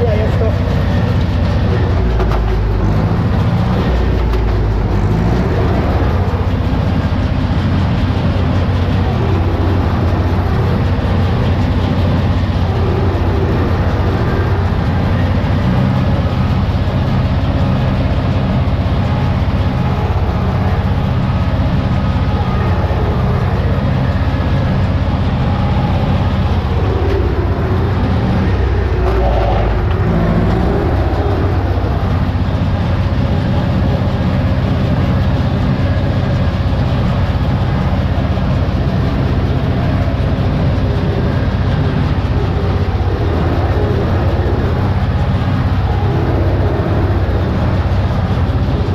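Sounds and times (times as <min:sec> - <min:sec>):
tractor engine running under load: 0:00.0 - 0:48.9.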